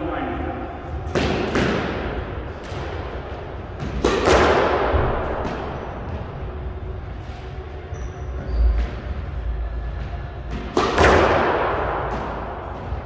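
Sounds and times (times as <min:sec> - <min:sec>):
squash ball knocks echoing: 0:00.9 - 0:06.2, 0:10.4 - 0:13.0.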